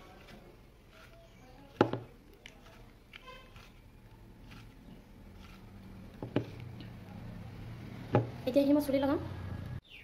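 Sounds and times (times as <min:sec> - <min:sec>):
fingers stirring liquid in bowl: 0:00.0 - 0:07.0
faint squeak: 0:03.2 - 0:03.7.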